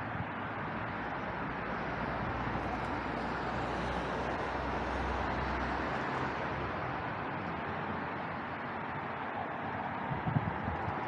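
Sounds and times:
distant road traffic hiss: 0:00.0 - 0:11.0.

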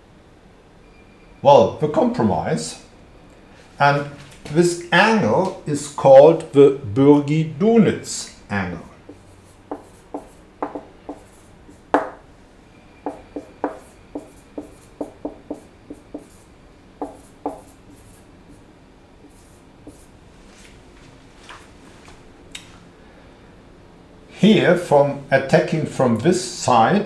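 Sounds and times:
marker writing on whiteboard: 0:09.1 - 0:12.2, 0:13.0 - 0:18.6, 0:19.2 - 0:20.1.

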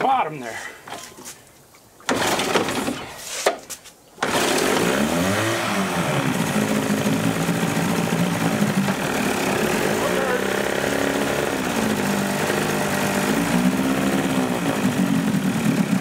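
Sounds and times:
outboard motor pull-started: 0:02.0 - 0:03.2, 0:04.2 - 0:16.0
outboard motor revving and idling: 0:02.1 - 0:03.0, 0:04.2 - 0:16.0.

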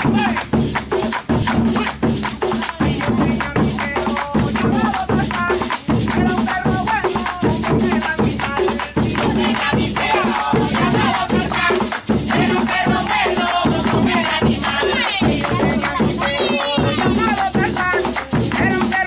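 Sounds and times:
hand clapping: 0:00.0 - 0:19.0
hand drum struck with stick: 0:00.0 - 0:19.0
percussion rattle: 0:00.0 - 0:19.0
voices singing: 0:03.2 - 0:19.0.

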